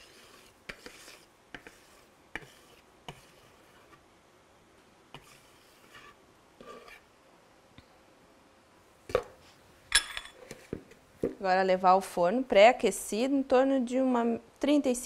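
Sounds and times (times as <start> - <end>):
whisk scraping batter in bowl: 0.0 - 4.0, 5.2 - 7.1.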